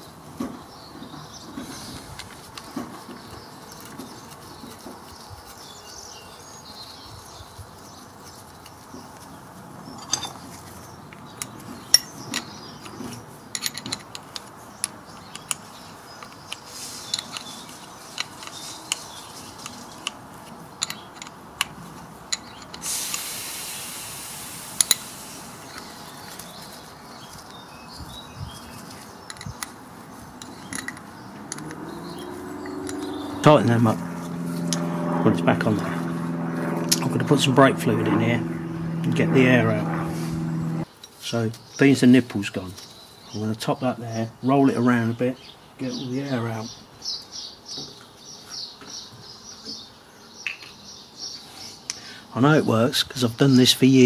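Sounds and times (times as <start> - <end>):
brief hiss: 22.8 - 25.7
metallic clicks of hand tools: 30.4 - 31.8, 32.6 - 33.2.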